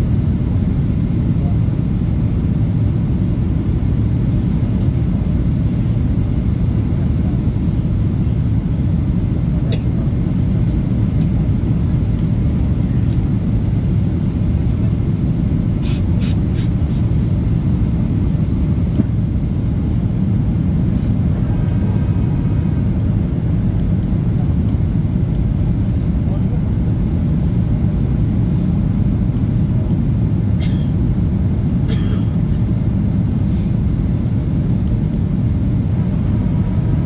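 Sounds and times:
airliner cabin engine rumble: 0.0s - 37.0s.

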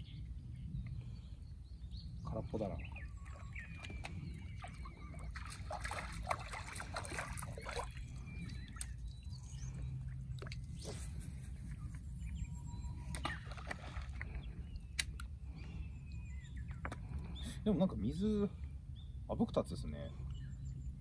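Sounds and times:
water splashing on stony shore: 4.6s - 8.9s, 13.2s - 14.3s.

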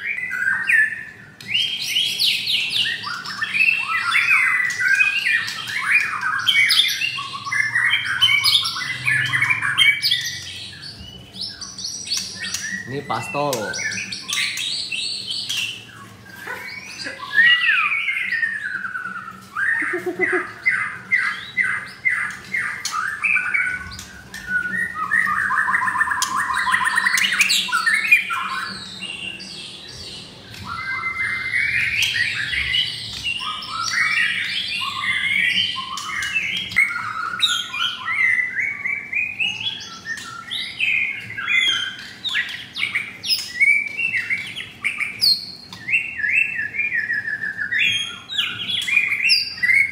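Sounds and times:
songbirds whistling and trilling: 0.0s - 49.9s.

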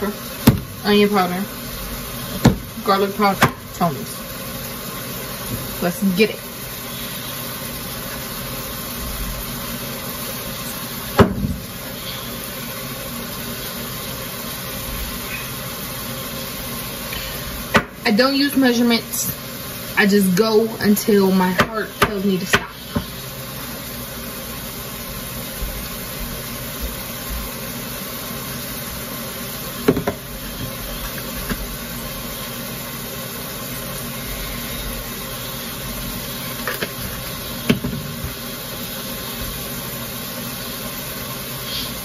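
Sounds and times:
meat sizzling in a skillet: 0.0s - 42.0s.

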